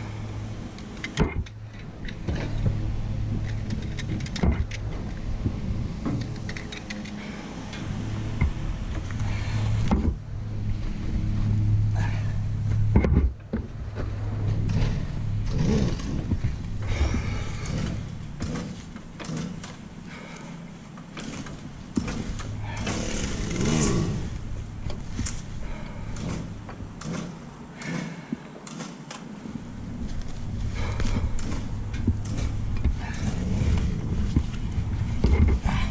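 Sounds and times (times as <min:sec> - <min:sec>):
small petrol engine humming: 0:00.0 - 0:35.9
knocks and scrapes of machine: 0:09.8 - 0:10.2, 0:12.8 - 0:20.4, 0:21.0 - 0:24.3.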